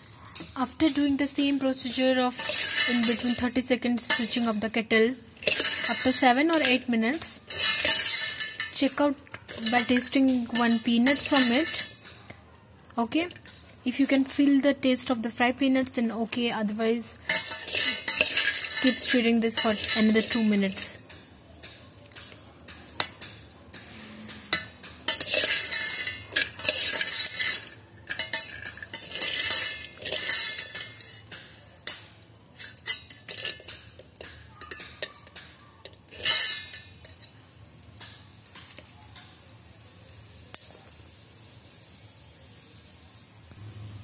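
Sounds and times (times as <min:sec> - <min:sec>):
peanuts rattling in metal pot: 0:00.0 - 0:12.4, 0:13.0 - 0:23.8, 0:24.5 - 0:37.4
spoon clinking on metal: 0:00.2 - 0:12.4, 0:17.2 - 0:37.4.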